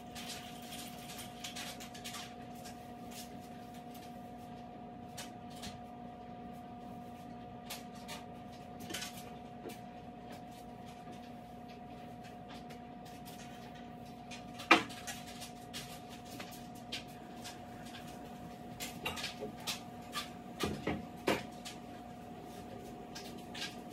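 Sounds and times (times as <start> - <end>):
steady hum: 0.0 - 23.9.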